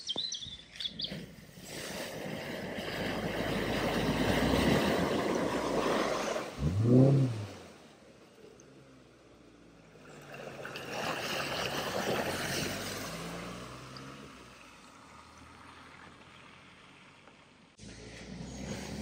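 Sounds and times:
water rushing: 0:01.2 - 0:17.2
vehicle engine running: 0:11.6 - 0:19.0.

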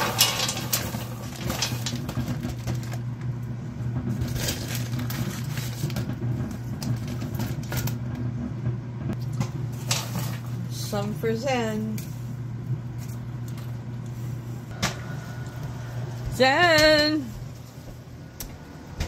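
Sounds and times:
paper bag crinkling and rustling: 0:00.0 - 0:03.1, 0:04.2 - 0:06.1
popcorn tumbling into a pan: 0:00.0 - 0:08.2, 0:09.2 - 0:10.8
steady low hum: 0:00.0 - 0:19.0.

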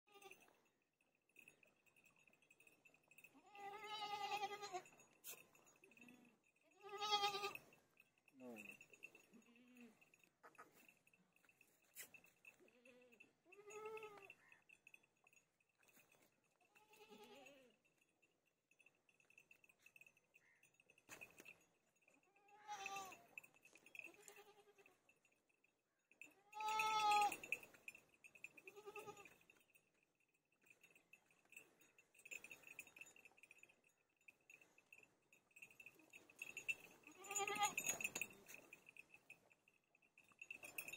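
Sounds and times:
buffalo calf bleating: 0:06.8 - 0:07.6, 0:37.1 - 0:38.0.

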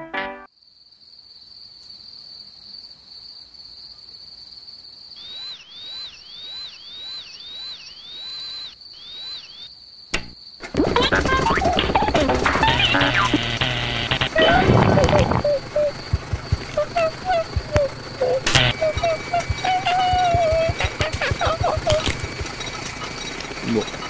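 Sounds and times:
repeated chirps: 0:05.2 - 0:10.4, 0:11.0 - 0:24.0
sharp click: 0:10.1 - 0:10.9, 0:17.6 - 0:21.2
high-pitched whine: 0:10.2 - 0:24.0
loud burst of noise: 0:10.8 - 0:24.0.

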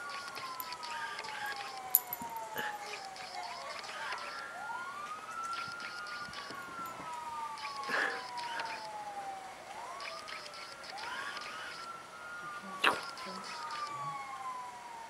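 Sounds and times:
sirens wailing: 0:00.0 - 0:15.0.

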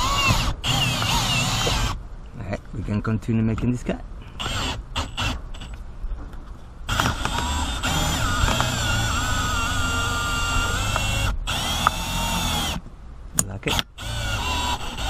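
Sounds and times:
cordless drill motor whine: 0:00.0 - 0:02.0, 0:04.4 - 0:05.8, 0:06.9 - 0:12.8, 0:13.7 - 0:15.0.

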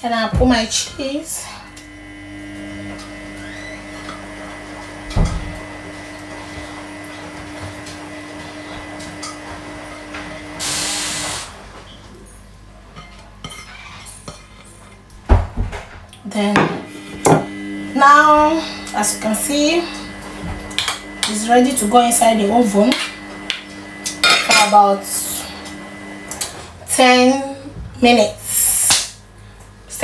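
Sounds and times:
machine hum: 0:01.4 - 0:11.4, 0:16.6 - 0:27.0.

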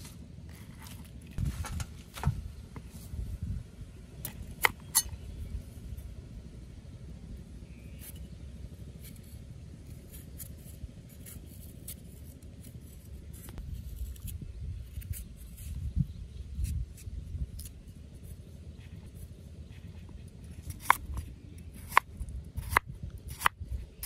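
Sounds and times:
cleaver scraping carrot: 0:09.0 - 0:24.0.

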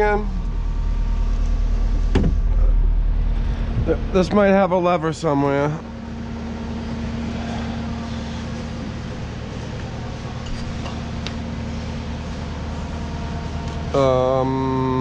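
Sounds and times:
diesel engine humming: 0:00.0 - 0:15.0.

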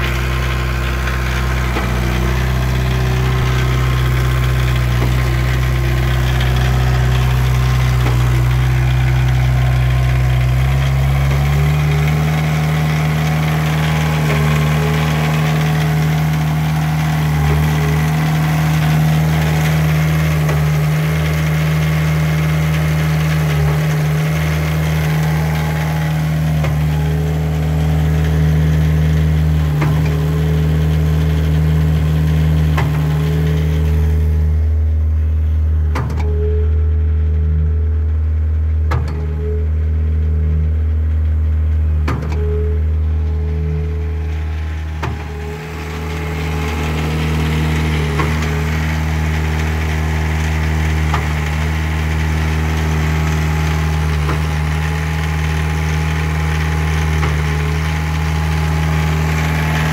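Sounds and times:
concrete pump engine running: 0:00.0 - 0:59.9.

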